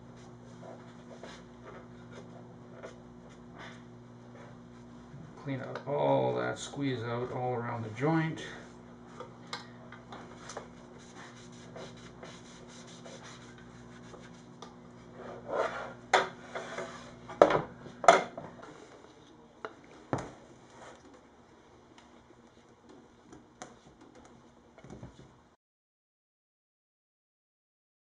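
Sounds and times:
rag rubbing on wood: 0:10.7 - 0:17.2.

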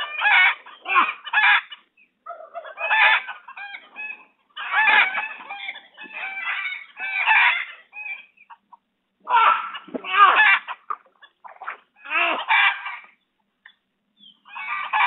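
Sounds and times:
chickens clucking and crowing: 0:00.0 - 0:15.0.

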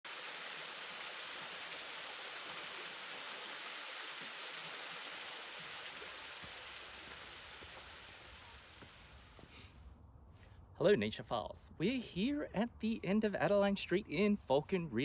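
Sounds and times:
small waterfall splashing: 0:00.0 - 0:09.5.

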